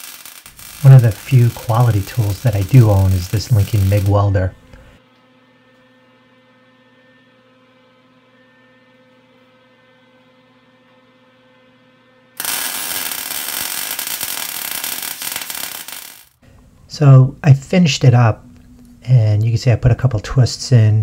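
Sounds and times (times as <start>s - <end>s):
welding arc crackling: 0.0s - 5.0s, 12.4s - 16.4s
faint electrical hum: 0.5s - 10.9s, 16.4s - 21.0s.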